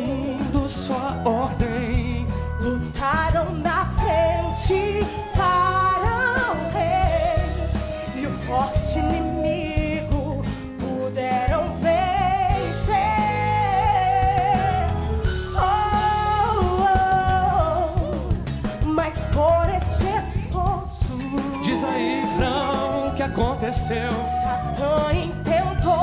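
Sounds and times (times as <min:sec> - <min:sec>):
live band bass and drums: 0:00.0 - 0:26.0
woman singing with vibrato: 0:00.0 - 0:26.0.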